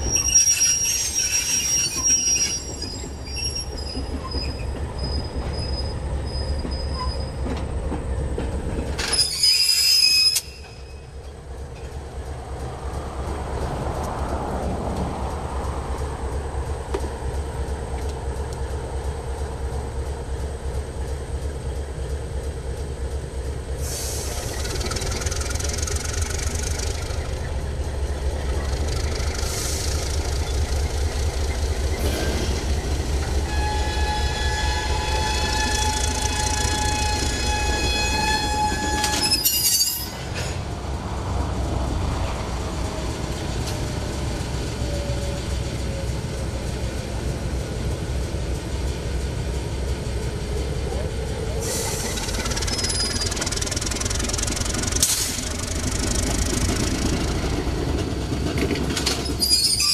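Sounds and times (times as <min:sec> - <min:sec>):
train wheels squealing on track: 0:00.0 - 0:12.0, 0:23.7 - 0:40.7, 0:42.1 - 0:59.9
diesel locomotive engine rumbling: 0:00.0 - 0:59.9.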